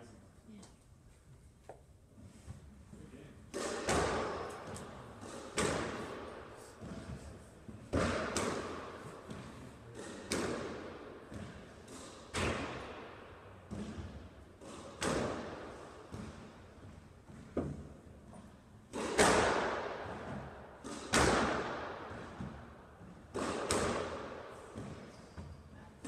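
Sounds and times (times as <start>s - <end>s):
squash ball cracks off walls: 3.5s - 6.5s, 7.9s - 16.5s, 18.9s - 25.0s.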